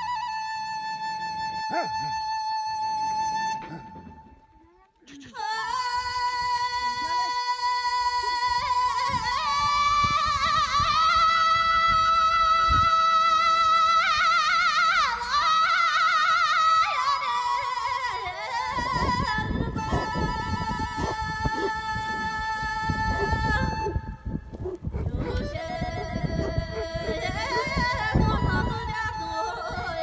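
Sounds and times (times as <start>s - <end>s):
high voice singing held notes: 24.9s - 29.8s.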